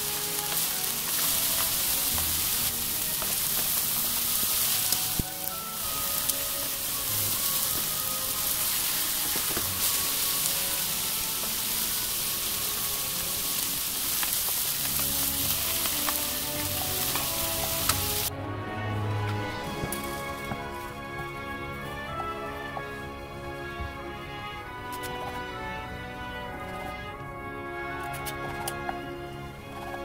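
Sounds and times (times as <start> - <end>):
food sizzling in hot oil: 0.0 - 18.3.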